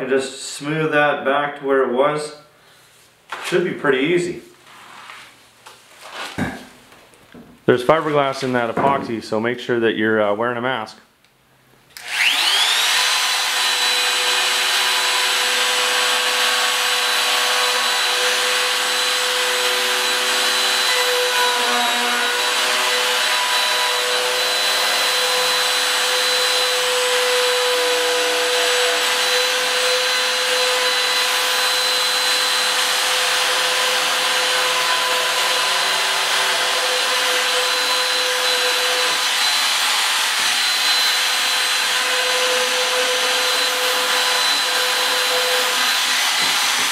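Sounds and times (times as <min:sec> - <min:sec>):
router whining: 0:11.9 - 0:46.9.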